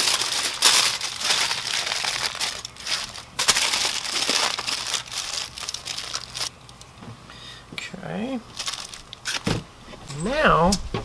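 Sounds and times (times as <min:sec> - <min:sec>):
aluminium foil crinkling: 0:00.0 - 0:06.9, 0:08.5 - 0:09.6.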